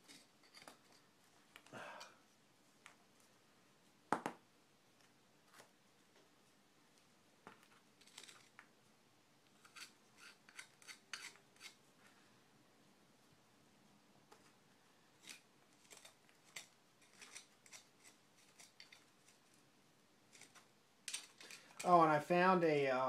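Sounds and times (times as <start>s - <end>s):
metal tool scraping grime: 9.6s - 11.8s, 15.2s - 19.4s.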